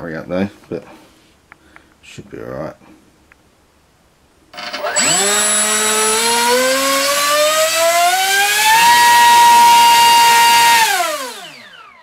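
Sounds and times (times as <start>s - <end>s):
electric motor whine: 4.6s - 12.0s.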